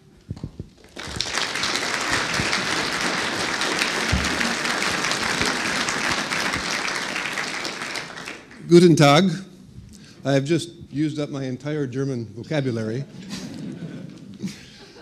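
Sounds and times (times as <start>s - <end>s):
audience applauding: 0.8s - 9.1s.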